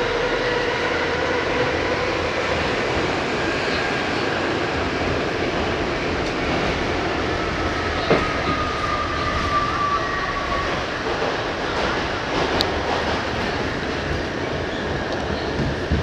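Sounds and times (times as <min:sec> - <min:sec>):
subway car rumble and rail clatter: 0:00.0 - 0:16.0.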